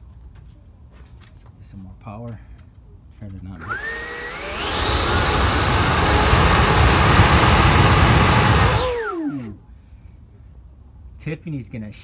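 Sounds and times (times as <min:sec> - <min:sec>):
electric fan high whine: 0:03.5 - 0:09.8.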